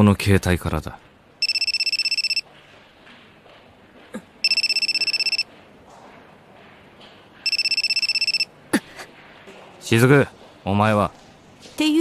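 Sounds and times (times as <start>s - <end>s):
mobile phone ringing: 1.4s - 2.5s, 4.4s - 5.5s, 7.4s - 8.5s.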